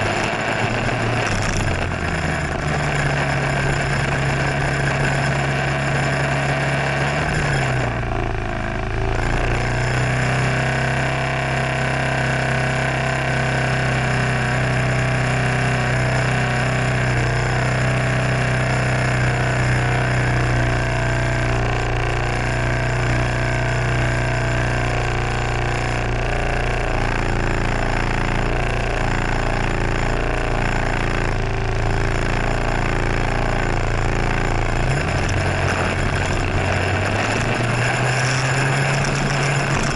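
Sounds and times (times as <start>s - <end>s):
scooter engine idling: 26.1s - 39.9s.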